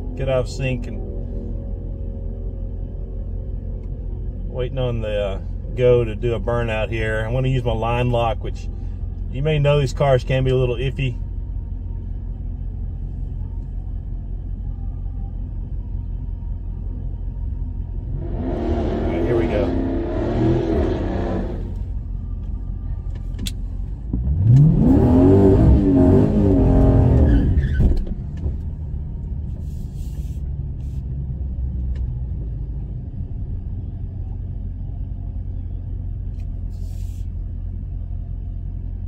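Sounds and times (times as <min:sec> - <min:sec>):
engine idle rumble: 0:00.0 - 0:18.3, 0:21.6 - 0:24.4, 0:27.6 - 0:39.0
engine revving hard: 0:18.1 - 0:21.8, 0:24.3 - 0:27.3.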